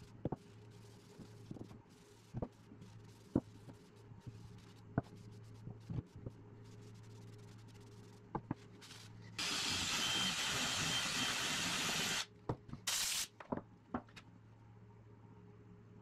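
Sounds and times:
cordless drill boring into wood: 9.4s - 12.3s
compressed air blast: 12.9s - 13.3s.

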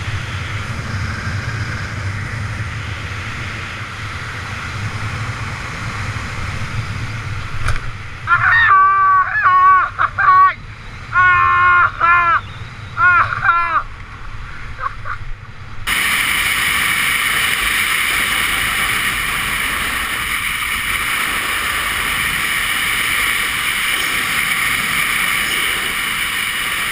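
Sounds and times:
rushing air and skis on snow: 0.0s - 8.3s, 15.5s - 26.9s.

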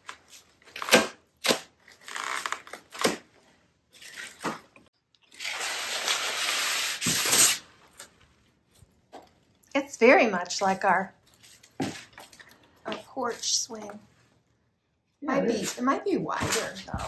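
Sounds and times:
plastic and foam crinkling: 1.8s - 9.6s.

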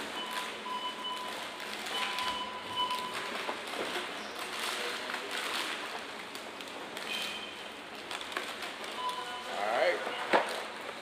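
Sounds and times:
barcode scanner beeping: 0.0s - 3.4s, 9.0s - 10.3s
plastic bags rustling: 0.0s - 11.0s.

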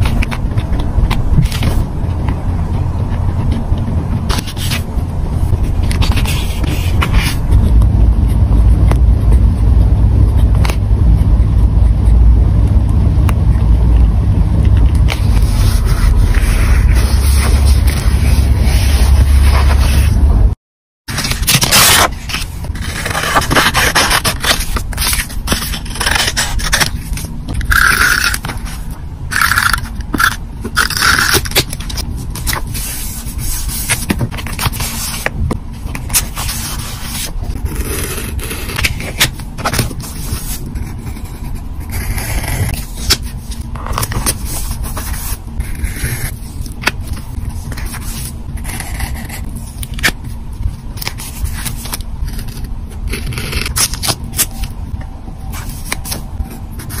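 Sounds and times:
paper sticker scraping and crackling: 0.0s - 9.4s, 13.5s - 20.3s, 21.1s - 57.0s
pen on sticker sheet: 15.1s - 20.1s.

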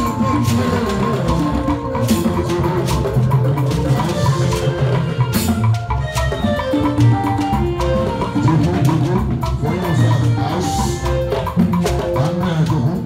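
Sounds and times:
hand drums playing: 0.0s - 13.0s
live band music: 0.0s - 13.0s.

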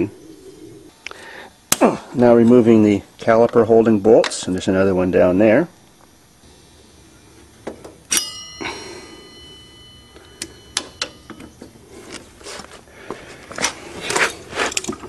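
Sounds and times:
sharp metallic clink: 8.1s - 12.2s.

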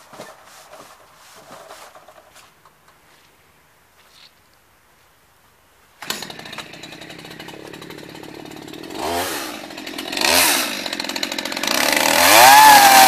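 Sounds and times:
chainsaw idling and revving: 6.0s - 13.0s.

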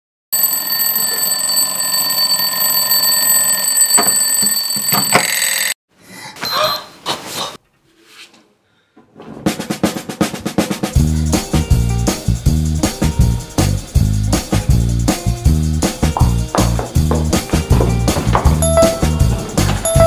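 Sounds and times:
alarm clock ringing: 0.4s - 5.8s, 18.6s - 20.0s
fast drum beat: 9.6s - 20.0s.

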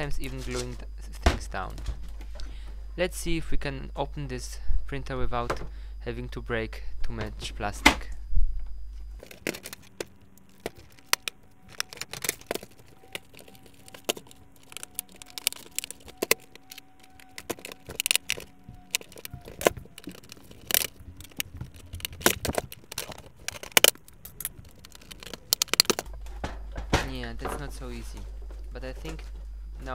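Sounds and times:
plastic printer casing rattling: 9.2s - 29.3s.

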